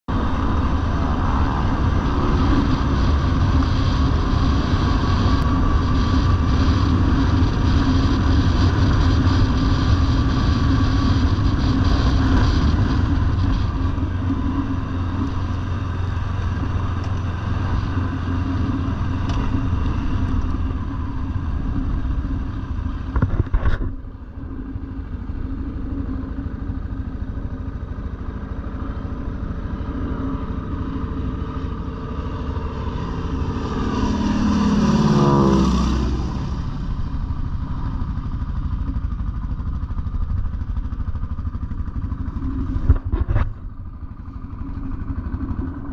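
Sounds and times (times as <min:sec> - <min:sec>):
quad bike engine running: 0:00.1 - 0:45.9
light aircraft flying past: 0:28.6 - 0:38.6.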